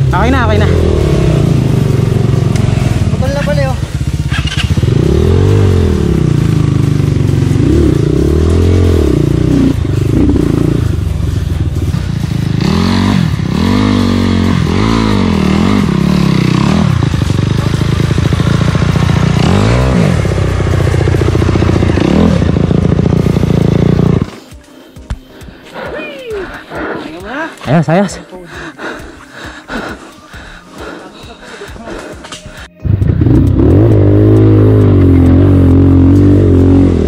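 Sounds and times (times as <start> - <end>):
motorcycle engine revving: 0.0 - 24.5, 32.5 - 37.0.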